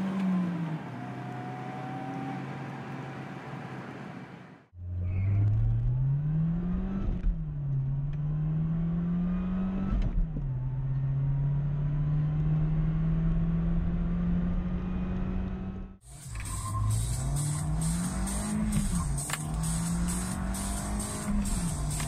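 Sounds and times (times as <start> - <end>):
car engine at full throttle: 0.0 - 22.0
gear upshift revs dropping: 14.6 - 22.0.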